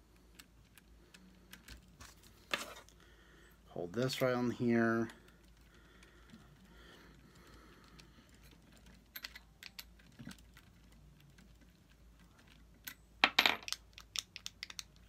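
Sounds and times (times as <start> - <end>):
small plastic and metal parts clicking: 0.0 - 2.1, 5.0 - 13.0, 13.6 - 15.0.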